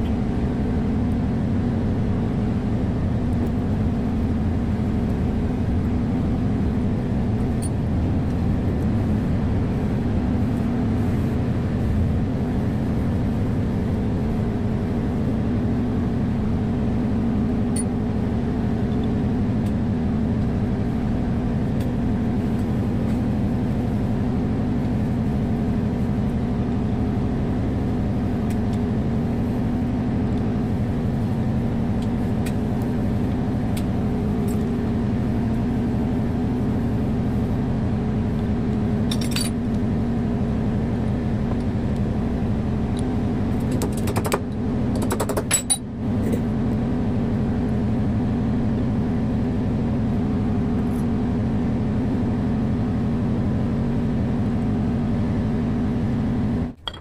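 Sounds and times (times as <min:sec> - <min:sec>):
metallic clinks of steel parts: 0:39.1 - 0:39.6, 0:56.8 - 0:57.0.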